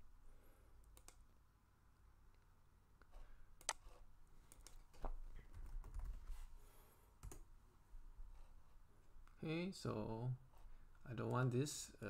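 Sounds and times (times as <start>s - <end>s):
mouse clicks: 0.8s - 1.2s, 3.6s - 3.8s
keyboard typing: 4.5s - 6.2s, 7.2s - 7.5s.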